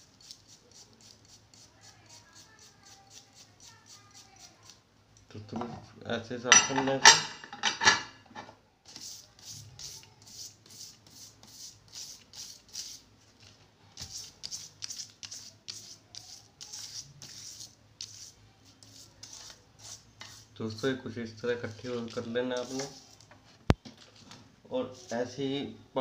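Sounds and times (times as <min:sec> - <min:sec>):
toothbrush scrubbing metal file: 0:00.0 - 0:04.8, 0:14.1 - 0:20.5.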